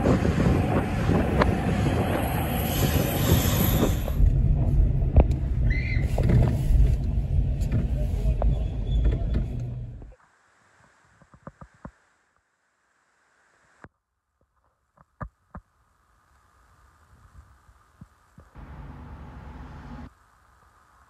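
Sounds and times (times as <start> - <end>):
highway traffic rushing past: 0.0 - 10.0, 18.6 - 20.1
traffic rumble inside car: 3.8 - 10.1, 18.4 - 20.9.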